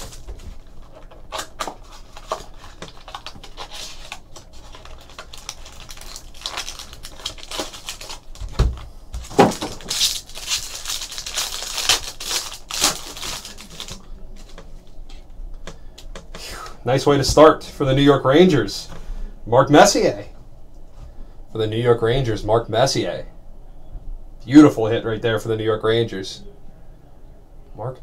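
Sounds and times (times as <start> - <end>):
foil pack crinkling and tearing: 0.0 - 14.6.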